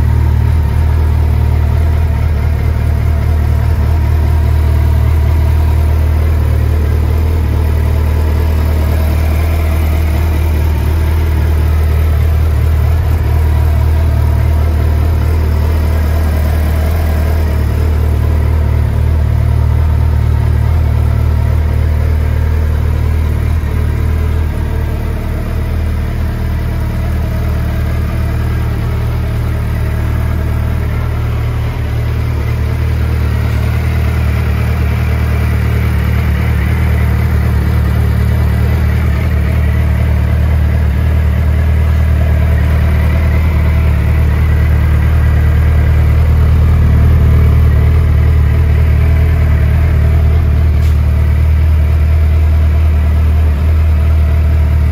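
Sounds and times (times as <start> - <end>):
motorcycle engine idling: 0.0 - 54.9.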